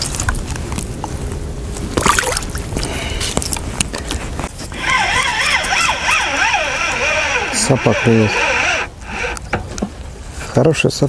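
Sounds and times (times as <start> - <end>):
water sloshing and splashing: 1.8 - 4.7.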